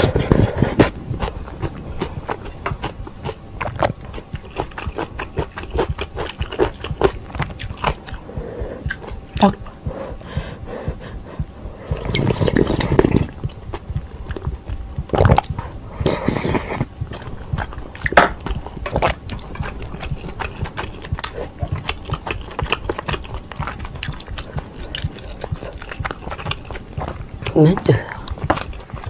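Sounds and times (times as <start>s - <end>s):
chewing with wet mouth noises: 0.0s - 29.0s.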